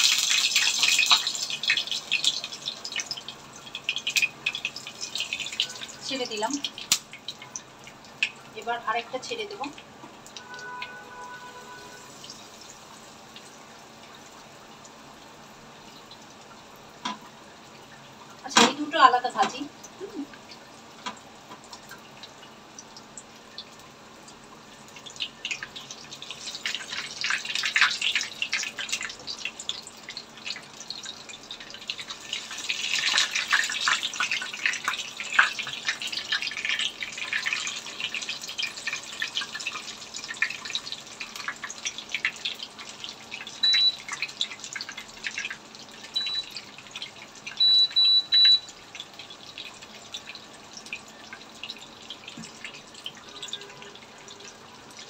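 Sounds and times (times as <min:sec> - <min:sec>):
food sizzling in hot oil: 0:00.0 - 0:55.0
short high electronic beeps: 0:43.6 - 0:44.0, 0:46.2 - 0:46.5, 0:47.6 - 0:48.7.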